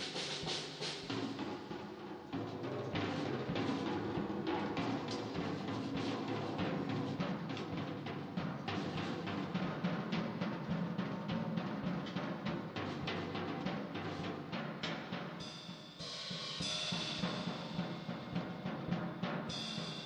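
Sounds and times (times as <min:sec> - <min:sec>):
drum kit played fast: 0:00.0 - 0:20.0
ringing cymbal wash: 0:15.4 - 0:20.0.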